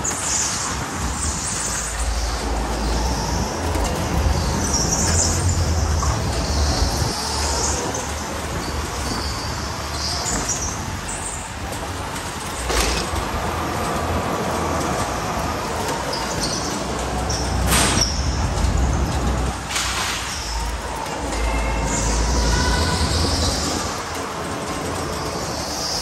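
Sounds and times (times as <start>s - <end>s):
electric go-kart motor: 0.0s - 26.0s
low rumble: 0.8s - 7.5s.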